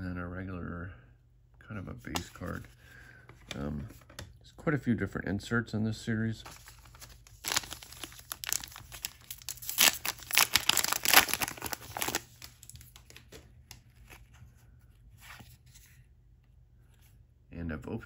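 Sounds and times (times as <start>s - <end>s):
wrapper tearing and crinkling: 6.5s - 13.3s.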